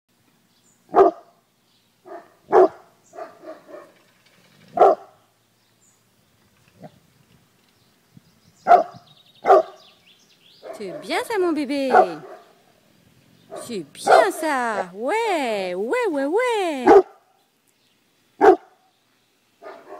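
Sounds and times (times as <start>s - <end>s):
large dog barking: 0.9s - 1.3s, 2.0s - 4.0s, 4.8s - 5.2s, 8.7s - 9.8s, 11.9s - 12.6s, 13.5s - 14.4s, 16.9s - 17.2s, 18.4s - 18.8s, 19.6s - 19.9s.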